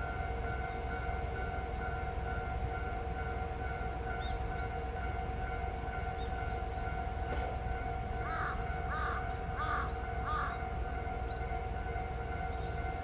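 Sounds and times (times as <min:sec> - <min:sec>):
diesel railcar idling hum: 0:00.0 - 0:13.0
crow cawing: 0:08.2 - 0:10.6.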